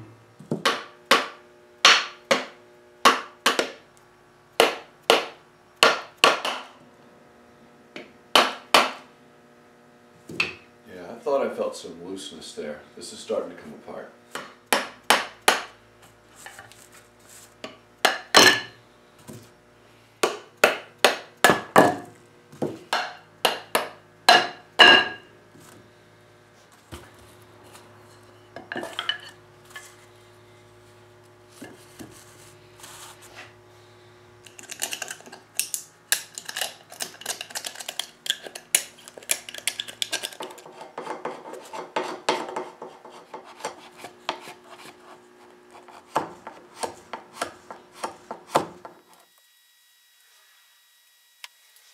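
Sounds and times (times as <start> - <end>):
scraping and rubbing on wood: 16.0 - 17.8, 34.5 - 49.0.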